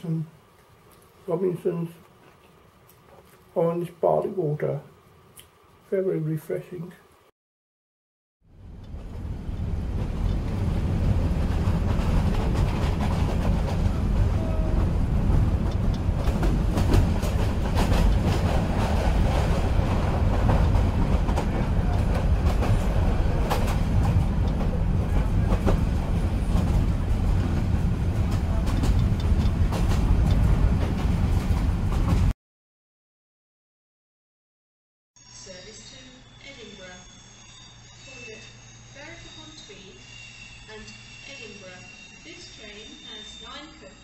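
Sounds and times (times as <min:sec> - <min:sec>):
train rumbling: 0:08.5 - 0:32.3
wheels clicking over rails: 0:08.6 - 0:32.3.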